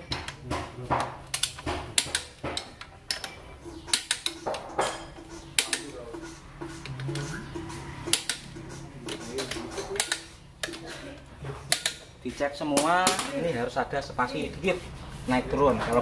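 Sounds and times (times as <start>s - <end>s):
tool knocking against metal: 0.0s - 10.9s
socket wrench clicking on bolts: 1.3s - 4.4s, 11.7s - 12.0s.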